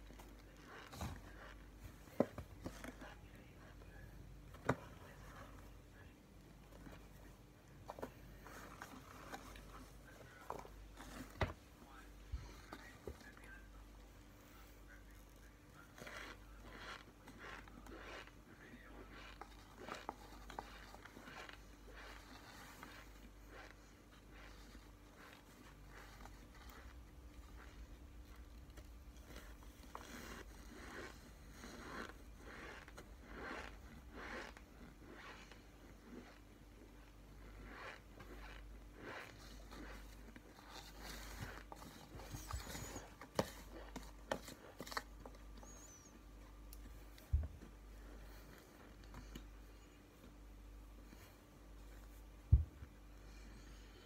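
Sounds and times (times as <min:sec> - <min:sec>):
cornstarch crunching: 0:15.8 - 0:36.4.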